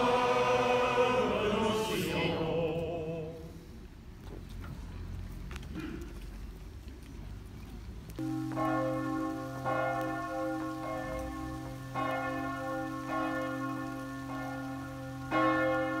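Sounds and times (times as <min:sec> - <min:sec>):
church bells ringing: 0:08.2 - 0:16.0.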